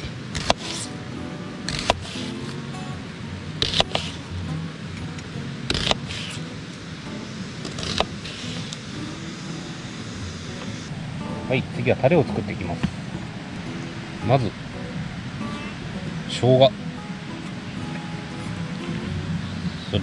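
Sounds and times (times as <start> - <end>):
low steady rumble: 0.0 - 20.0
knife slicing onion on board: 1.7 - 2.5, 3.6 - 4.2, 5.7 - 6.4.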